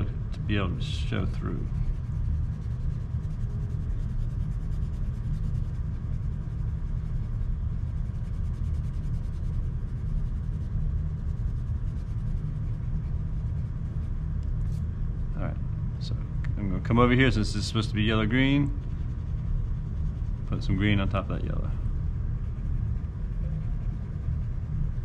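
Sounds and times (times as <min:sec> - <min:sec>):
low room rumble: 0:00.0 - 0:25.0
pencil shading on paper: 0:01.6 - 0:14.2, 0:18.7 - 0:21.1, 0:22.4 - 0:25.0.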